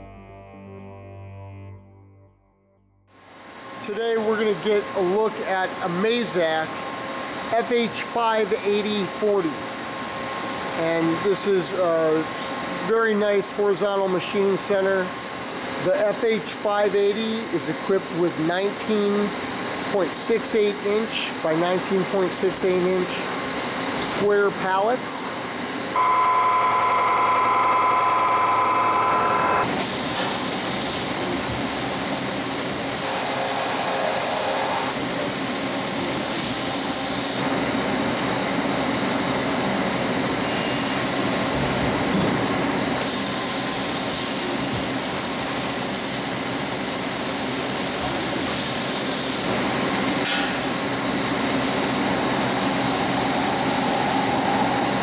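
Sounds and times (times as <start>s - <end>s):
machine running noise: 3.1s - 55.0s
machine whine: 25.8s - 46.1s, 46.8s - 55.0s.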